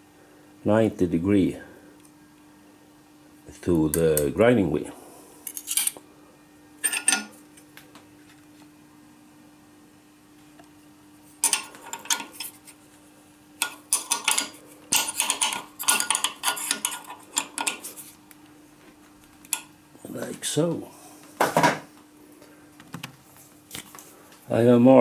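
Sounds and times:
faint steady hum: 0:00.0 - 0:25.0
wrench clinking against steel fixture: 0:06.8 - 0:07.3.

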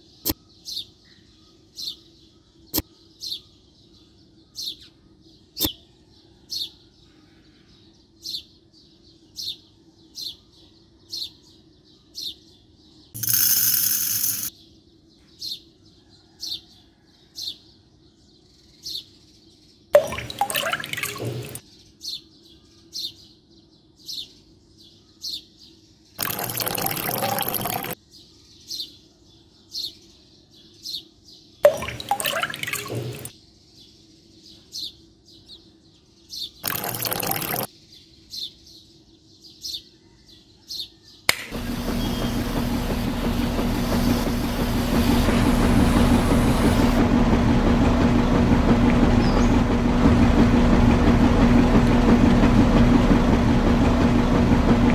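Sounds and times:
small motor humming and rattling: 0:13.2 - 0:14.5, 0:20.0 - 0:21.6, 0:26.2 - 0:28.0, 0:31.7 - 0:33.3, 0:36.6 - 0:37.7, 0:41.3 - 0:54.9.

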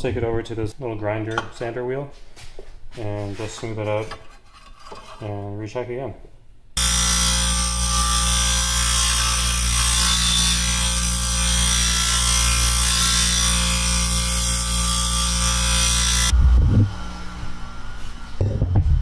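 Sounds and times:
disc sander grinding metal: 0:06.8 - 0:16.3.

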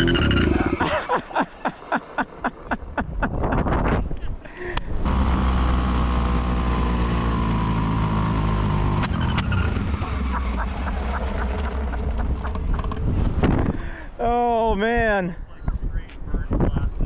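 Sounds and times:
quad engine running: 0:00.0 - 0:01.2, 0:04.8 - 0:13.9.

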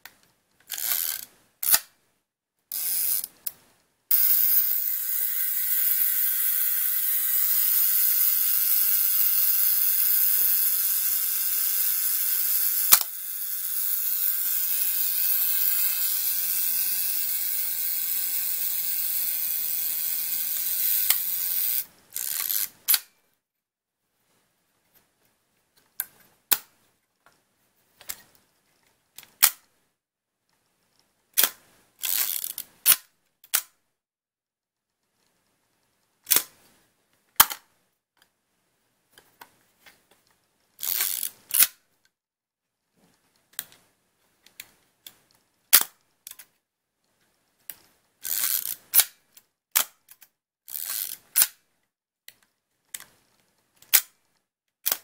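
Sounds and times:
film advance ratcheting: 0:00.7 - 0:01.8, 0:02.7 - 0:03.3, 0:04.1 - 0:23.0, 0:31.4 - 0:33.6, 0:40.8 - 0:41.7, 0:48.2 - 0:49.1, 0:50.7 - 0:51.6.

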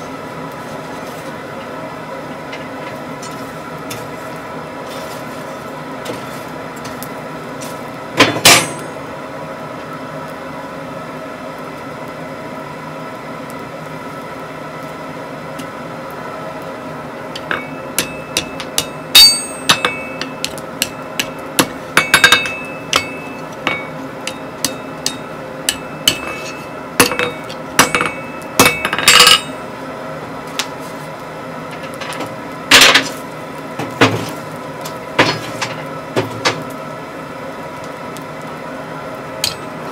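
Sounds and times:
steady hum: 0:00.0 - 0:39.9
hammer striking steel on anvil: 0:08.2 - 0:09.0, 0:17.4 - 0:29.6, 0:39.4 - 0:39.8
anvil ringing: 0:08.4 - 0:09.0, 0:17.4 - 0:29.6.

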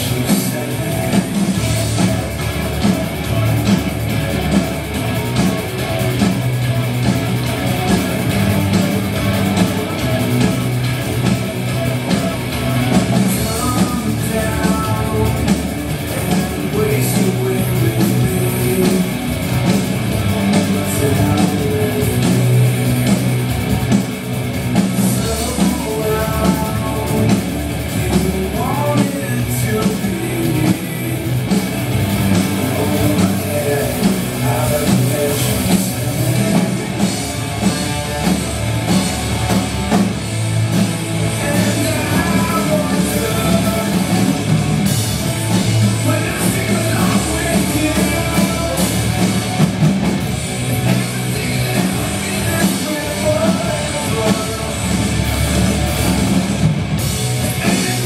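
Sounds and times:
drums and cymbals: 0:00.0 - 0:58.0
electric guitar: 0:00.0 - 0:58.0
person singing: 0:06.7 - 0:19.3, 0:20.1 - 0:22.8, 0:25.0 - 0:31.4, 0:32.3 - 0:37.1, 0:41.2 - 0:44.5, 0:45.6 - 0:49.3, 0:50.7 - 0:55.0, 0:57.5 - 0:58.0.

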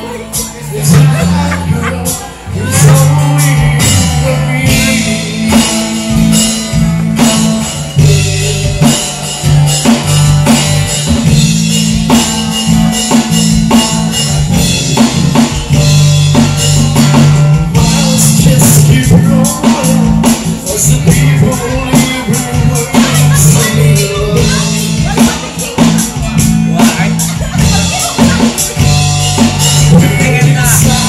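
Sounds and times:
man singing through microphone: 0:00.0 - 0:11.1, 0:17.6 - 0:31.0
deep bass notes: 0:00.0 - 0:31.0
drum kit beat: 0:00.0 - 0:31.0
electric guitar: 0:00.0 - 0:31.0.

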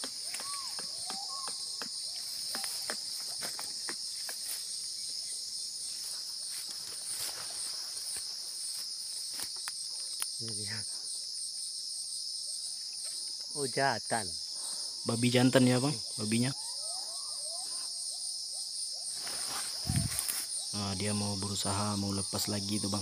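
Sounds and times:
forest insects droning: 0:00.0 - 0:23.0.

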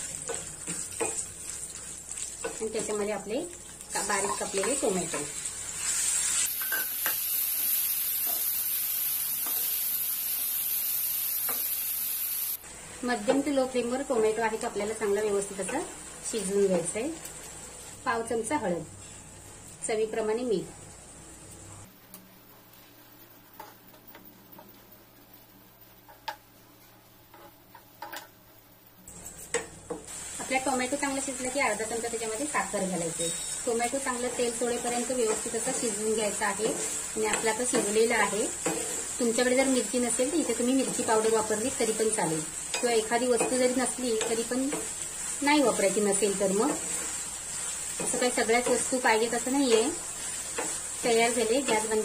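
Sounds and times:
tomatoes sizzling in hot oil: 0:00.0 - 0:52.0
metal spoon scraping a frying pan: 0:33.2 - 0:33.7.

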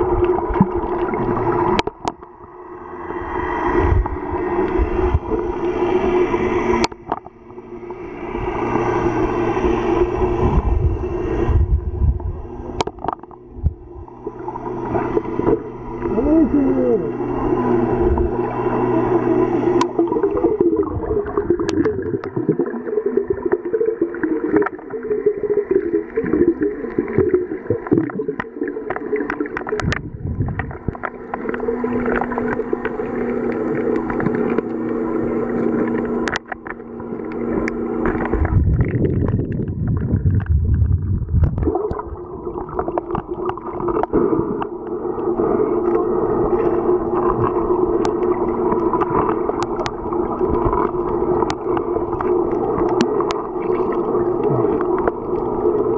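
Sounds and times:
low rumble of water movement: 0:00.0 - 0:55.9
underwater gurgling and sloshing: 0:00.0 - 0:55.9
steady multi-tone drone: 0:01.4 - 0:39.2.

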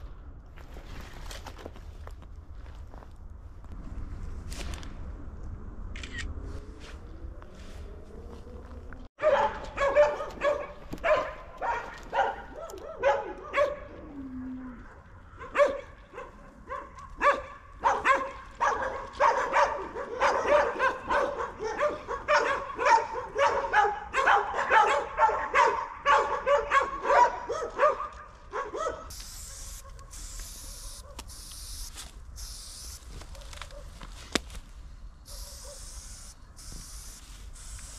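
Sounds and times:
dogs barking: 0:09.2 - 0:14.0, 0:14.8 - 0:30.2, 0:35.3 - 0:35.9
spray paint can hissing: 0:29.1 - 0:33.2, 0:35.3 - 0:37.9.

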